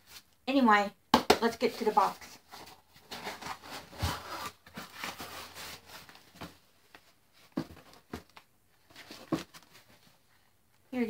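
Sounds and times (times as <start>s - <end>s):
cardboard scraping and rubbing: 1.7s - 6.4s.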